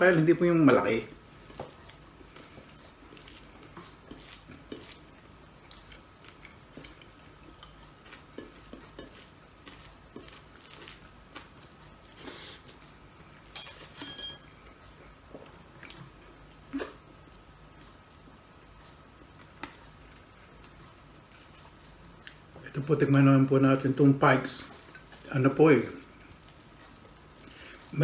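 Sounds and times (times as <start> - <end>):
chewing: 1.4 - 13.0, 14.6 - 22.9, 23.7 - 28.0
ringing clinks on a dish: 13.6 - 14.6.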